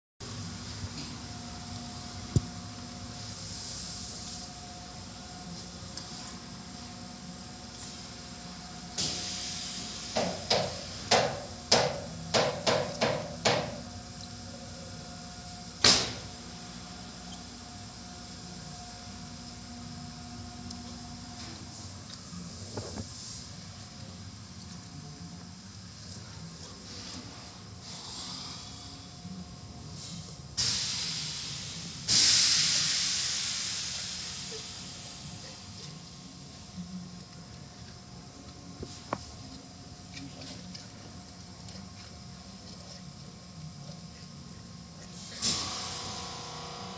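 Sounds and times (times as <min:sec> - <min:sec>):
car wash equipment hissing: 0:00.3 - 0:13.8, 0:26.7 - 0:37.1, 0:45.1 - 0:46.9.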